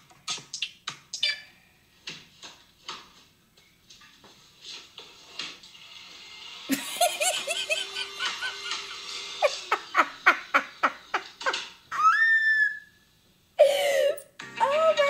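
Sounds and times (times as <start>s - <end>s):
woman laughing hard: 6.7s - 12.6s.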